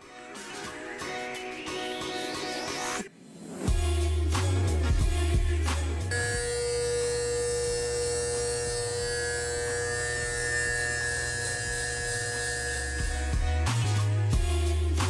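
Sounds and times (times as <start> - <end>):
electric hair clippers buzzing: 6.1 - 14.5.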